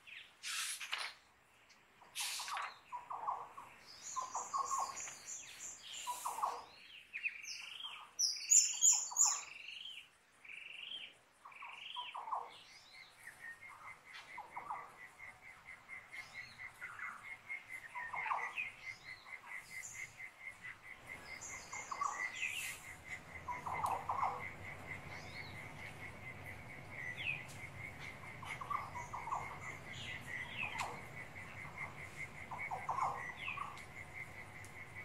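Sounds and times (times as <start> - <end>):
bird chirps and calls: 2.0 - 35.0
crickets chirping: 2.2 - 6.8, 10.4 - 35.0.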